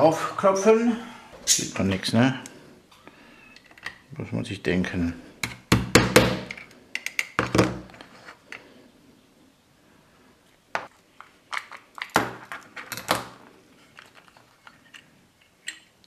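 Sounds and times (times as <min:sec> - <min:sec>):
tools and metal parts clicking: 0:13.9 - 0:16.0.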